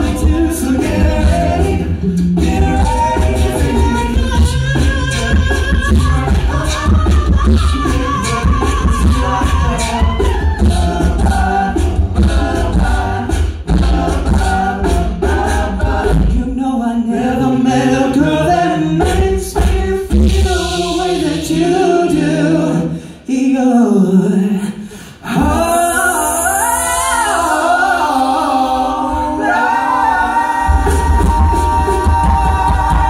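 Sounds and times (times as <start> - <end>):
deep sung bass line: 0.0 - 22.4
men singing a cappella harmony: 0.0 - 33.0.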